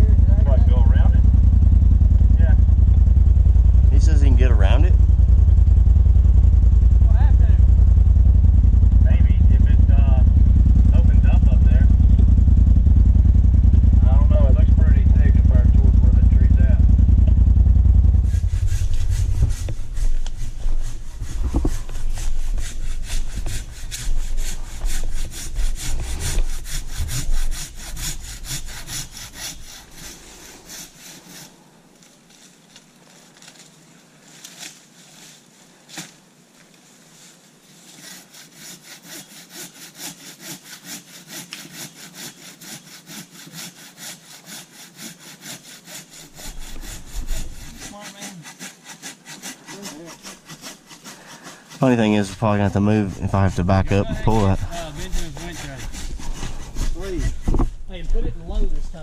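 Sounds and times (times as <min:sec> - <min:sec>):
vehicle engine idling: 0:00.0 - 0:28.6, 0:51.9 - 0:55.5
hand saw cutting wood: 0:18.1 - 0:31.6, 0:37.6 - 0:58.8.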